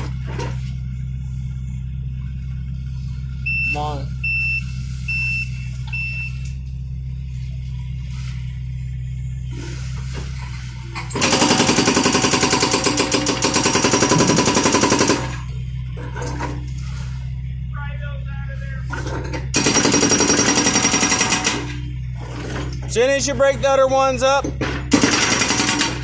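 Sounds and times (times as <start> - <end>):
excavator engine humming: 0.0 - 26.0
short beeps: 3.4 - 6.5
hydraulic breaker hammering concrete: 11.1 - 15.4, 19.0 - 21.7, 24.4 - 26.0.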